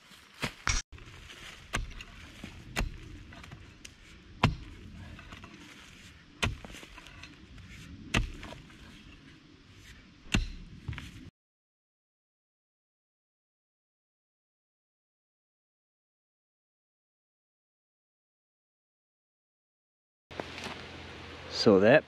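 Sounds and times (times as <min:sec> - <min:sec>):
mattock chopping into dirt: 0:00.4 - 0:00.8, 0:01.6 - 0:03.6, 0:04.4 - 0:05.0, 0:06.4 - 0:06.9, 0:08.1 - 0:08.6, 0:10.3 - 0:11.1.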